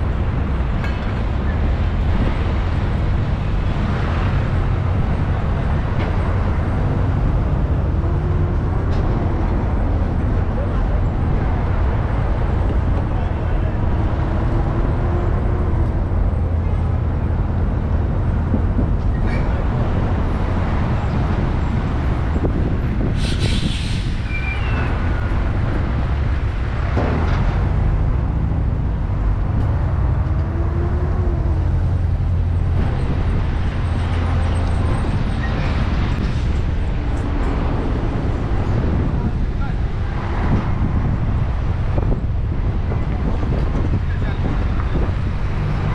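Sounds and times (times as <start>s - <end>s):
road and engine rumble: 0.0s - 45.9s
short hiss: 23.2s - 24.2s.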